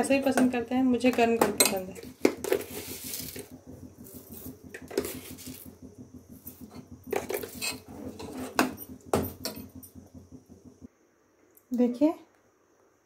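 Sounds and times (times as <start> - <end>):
spoon stirring in steel pot: 0.0 - 10.3.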